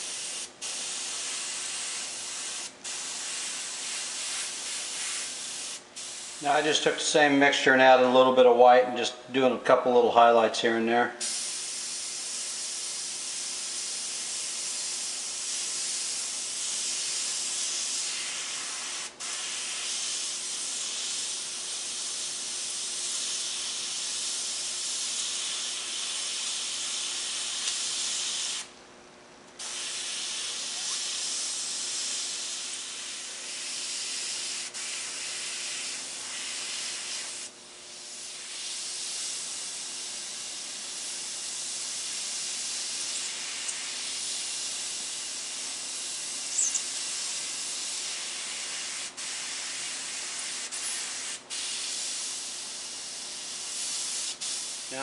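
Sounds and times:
airbrush hissing: 0:00.0 - 0:06.8, 0:11.2 - 0:28.7, 0:29.6 - 0:55.0.

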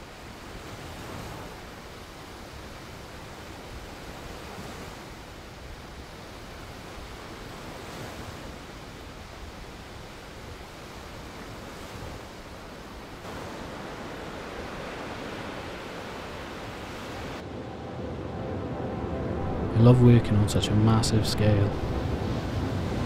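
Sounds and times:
surf washing up beach: 0:00.0 - 0:23.0.

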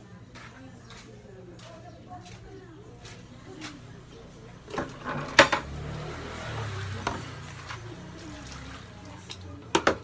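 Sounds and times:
knocks and clatters in basin: 0:04.6 - 0:10.0.

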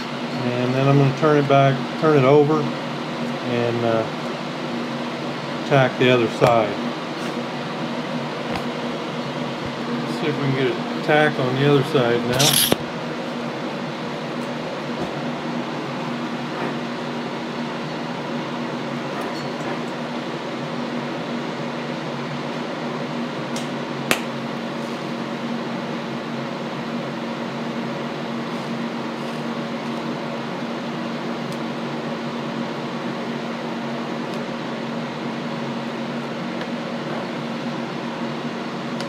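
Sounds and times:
fan humming: 0:00.0 - 0:19.1
sharp click: 0:12.3 - 0:12.8.

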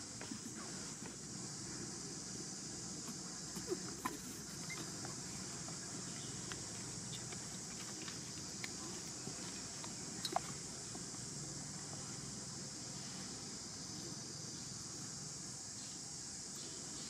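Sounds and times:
steady high hiss: 0:00.0 - 0:17.0
small clicks and rustles: 0:03.1 - 0:11.2.

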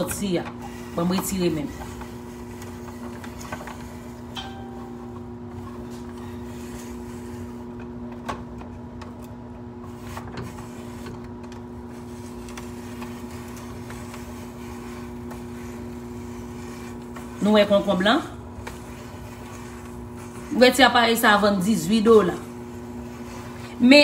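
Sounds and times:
two-tone fan hum: 0:00.0 - 0:24.0.

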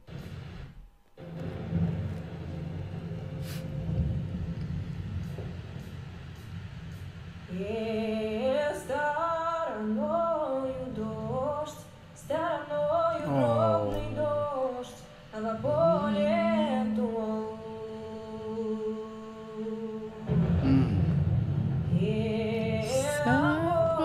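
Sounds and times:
woman singing a slow folk melody: 0:07.5 - 0:20.3, 0:21.9 - 0:24.0.

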